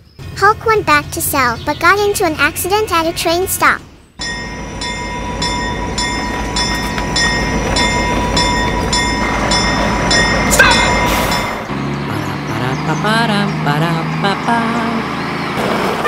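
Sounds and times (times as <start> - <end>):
low train rumble: 0.0 - 16.0
rising chirp: 3.8 - 15.6
railroad crossing bell ringing: 4.2 - 11.9.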